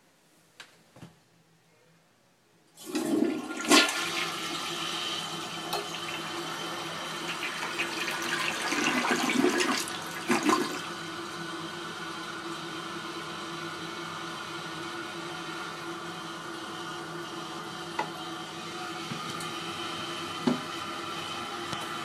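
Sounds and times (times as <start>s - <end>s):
toilet refilling: 2.8s - 13.0s
toilet flushing: 2.8s - 22.0s.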